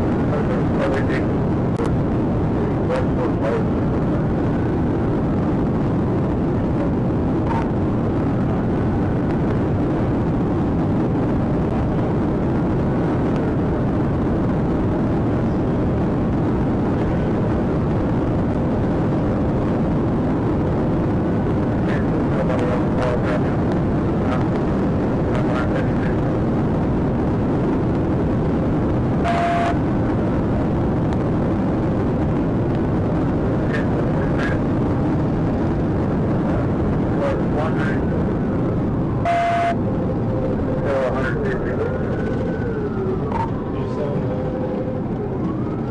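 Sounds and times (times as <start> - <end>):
car interior road noise: 0.0 - 45.9.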